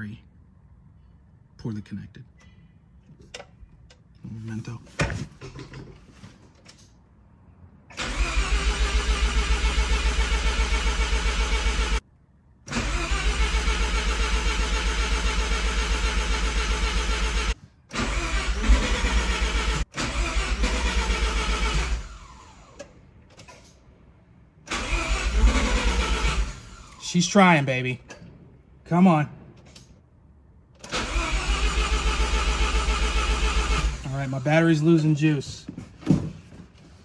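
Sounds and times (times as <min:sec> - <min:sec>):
engine cranking by starter: 0:07.9 - 0:12.0, 0:12.6 - 0:23.8, 0:24.6 - 0:28.3, 0:30.8 - 0:34.6.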